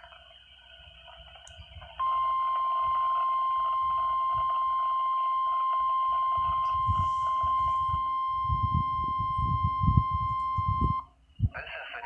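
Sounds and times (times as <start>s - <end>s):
high-pitched alarm tone: 2.0s - 11.1s.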